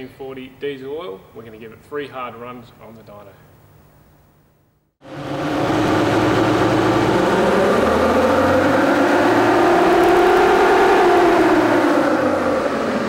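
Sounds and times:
diesel engine running under load: 5.0s - 13.0s
tyres driving dyno rollers: 5.0s - 13.0s.

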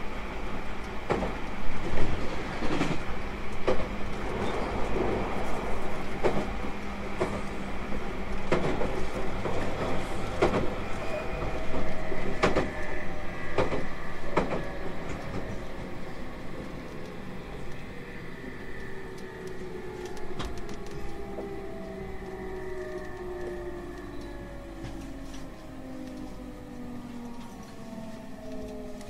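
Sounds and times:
steady train rumble: 0.0s - 29.0s
train wheels clicking over rail joints: 11.4s - 15.7s.

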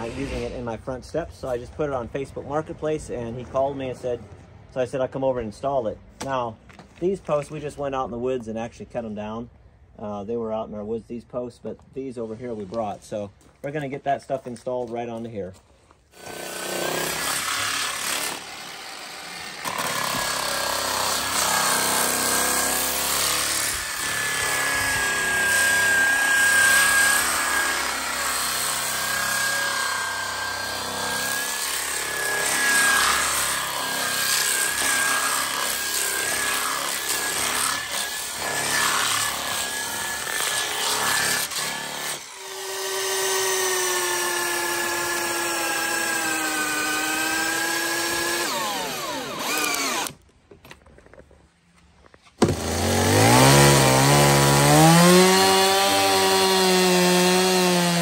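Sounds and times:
power saw cutting log: 0.0s - 0.9s, 16.1s - 50.2s, 52.4s - 58.0s
cordless drill whining: 16.2s - 50.2s.

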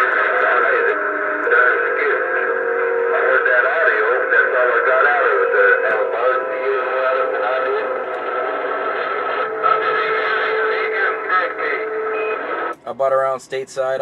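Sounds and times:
garbled pitch-shifted radio voices: 0.0s - 14.0s
radio static: 0.0s - 14.0s.

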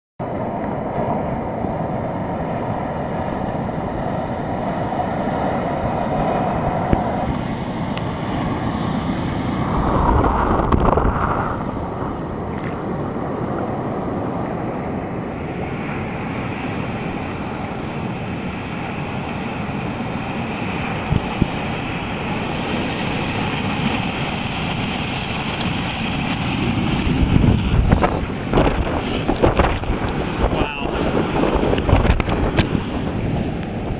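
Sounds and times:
ocean surf: 0.2s - 33.9s
wind buffeting microphone: 0.2s - 33.9s
water splashes: 8.8s - 14.0s.

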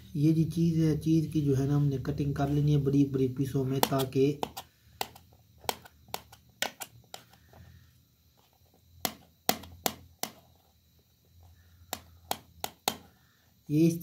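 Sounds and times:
knife tapping metal tray: 3.7s - 6.8s.

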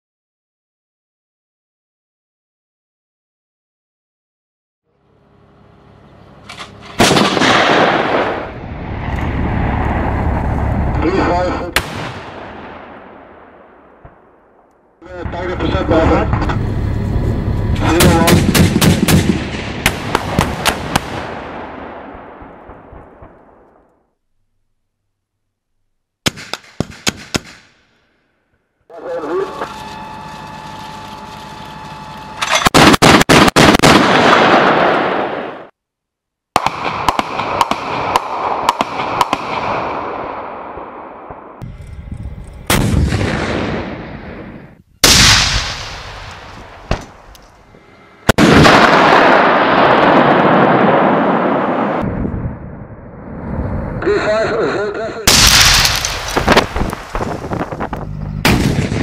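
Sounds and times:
sharp crack: 6.4s - 9.4s, 11.7s - 14.8s, 17.8s - 24.0s, 26.2s - 28.0s, 36.6s - 41.6s, 45.0s - 47.6s, 55.3s - 59.0s
cannon firing bursts: 6.5s - 10.5s, 11.1s - 23.9s, 26.2s - 28.0s, 32.5s - 35.7s, 36.5s - 41.6s, 42.7s - 47.3s, 48.2s - 52.1s, 55.2s - 59.0s
rounds exploding: 6.8s - 9.9s, 11.0s - 16.6s, 17.7s - 23.9s, 26.2s - 27.9s, 32.6s - 35.7s, 36.5s - 41.6s, 42.6s - 47.4s, 48.2s - 54.0s, 55.2s - 59.0s.

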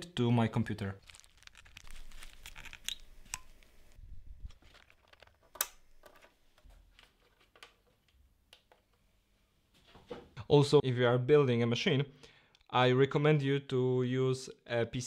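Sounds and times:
cable plugs clicking into ports: 5.0s - 6.3s.

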